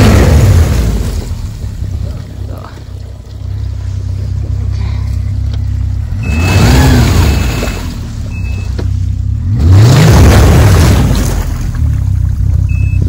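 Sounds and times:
snowmobile engine revving: 0:06.0 - 0:13.0.

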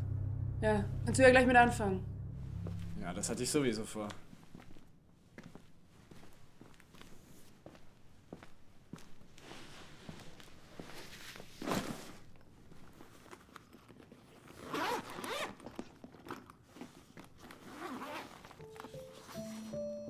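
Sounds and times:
piano notes: 0:00.0 - 0:04.0, 0:18.6 - 0:20.0
fabric handling: 0:14.4 - 0:15.5, 0:16.7 - 0:19.7
bag zipper opening: 0:14.4 - 0:18.6.

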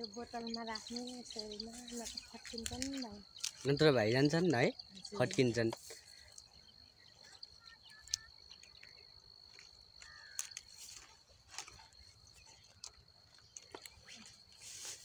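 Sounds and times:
bird chirps: 0:00.0 - 0:11.0
high-pitched insect trill: 0:00.0 - 0:15.0
faint clicks and rustles: 0:07.2 - 0:15.0.

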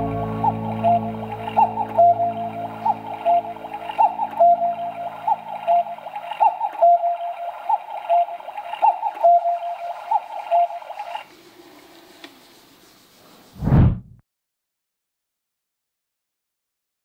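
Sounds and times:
cuckoo clock calling: 0:00.0 - 0:11.3.

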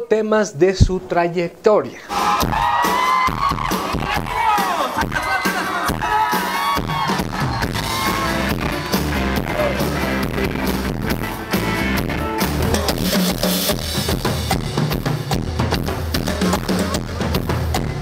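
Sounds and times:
drum kit beat: 0:02.1 - 0:18.0
bass guitar: 0:06.9 - 0:18.0.

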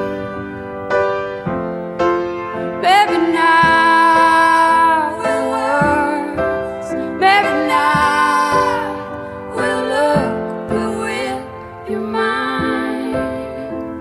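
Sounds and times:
piano: 0:00.0 - 0:14.0
woman singing: 0:02.8 - 0:14.0.

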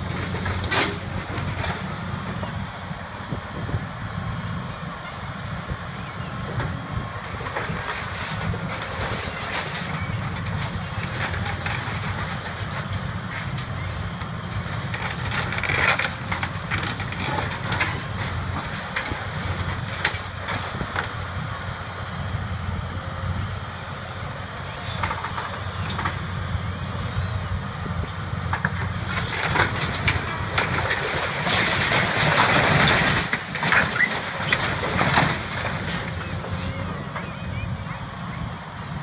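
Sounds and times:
metal roof crunching and clanking: 0:00.0 - 0:02.5, 0:07.3 - 0:21.2, 0:28.5 - 0:37.4
excavator diesel engine running: 0:00.0 - 0:39.0.

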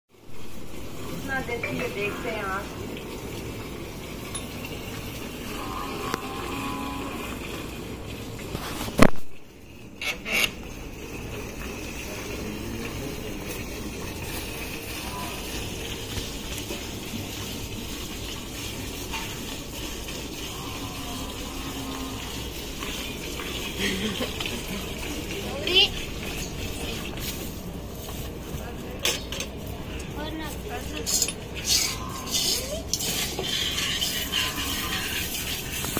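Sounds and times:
milk hissing into steel pail: 0:11.3 - 0:27.8, 0:31.6 - 0:35.9.

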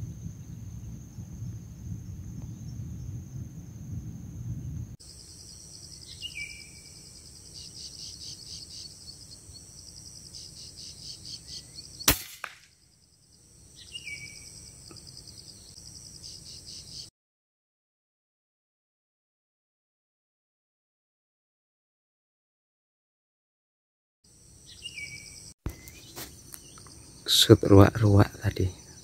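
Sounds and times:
insect chorus: 0:00.0 - 0:17.1, 0:24.3 - 0:29.0
air rifle shot: 0:12.1 - 0:12.7.

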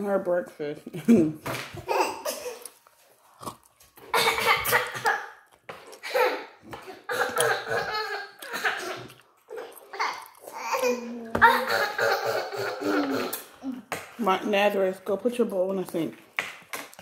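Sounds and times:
people coughing or laughing: 0:04.1 - 0:05.4, 0:06.0 - 0:09.1, 0:11.4 - 0:13.5.

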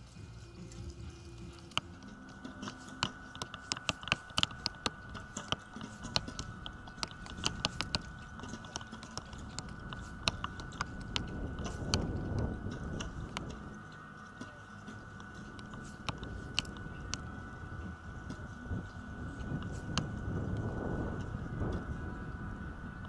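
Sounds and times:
sharp clicks and taps: 0:01.5 - 0:13.6.

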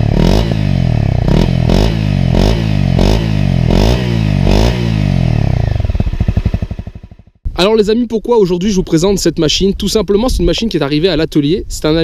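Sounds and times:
motorcycle engine revving: 0:00.0 - 0:07.4.

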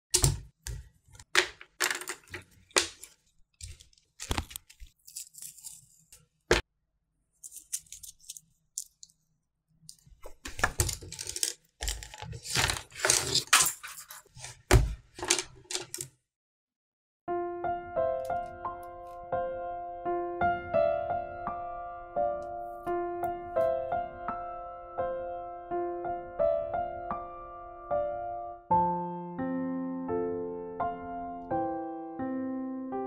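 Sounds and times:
paper rustling: 0:00.8 - 0:06.6, 0:07.4 - 0:09.1, 0:09.9 - 0:16.1.

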